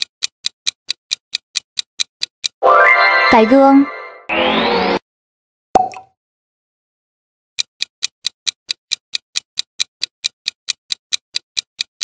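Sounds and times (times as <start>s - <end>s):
clock-like ticking: 0.0s - 2.6s, 7.6s - 12.0s.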